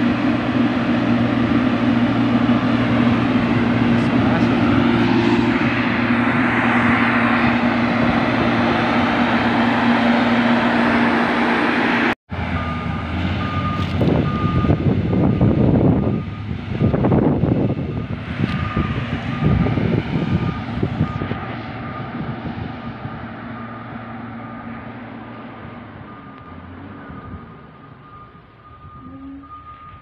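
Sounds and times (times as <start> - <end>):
diesel engine running: 0.0 - 30.0
reversing alarm beeping: 4.3 - 5.1, 12.5 - 16.6, 17.8 - 25.0, 26.0 - 30.0.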